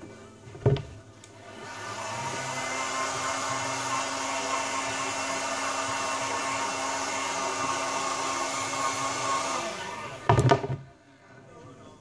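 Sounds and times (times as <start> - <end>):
heat gun blowing air: 1.5 - 10.3.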